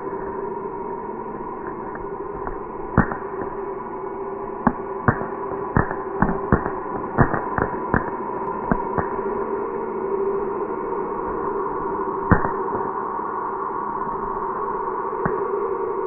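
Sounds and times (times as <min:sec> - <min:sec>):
droning tone: 0:00.0 - 0:16.0.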